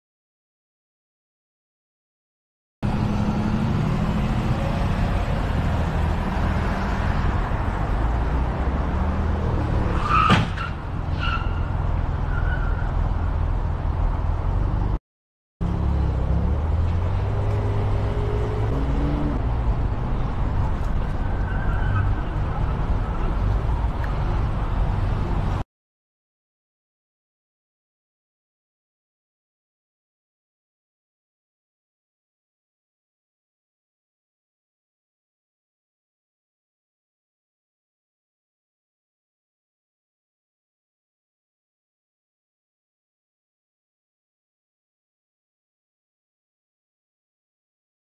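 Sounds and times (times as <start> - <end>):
car driving on highway: 2.8 - 15.0, 15.6 - 25.6
street traffic noise: 2.8 - 15.0, 15.6 - 25.6.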